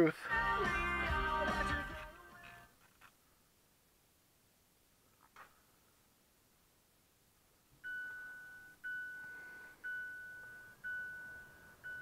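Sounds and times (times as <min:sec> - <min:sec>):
car warning chime dings: 0:07.8 - 0:12.0.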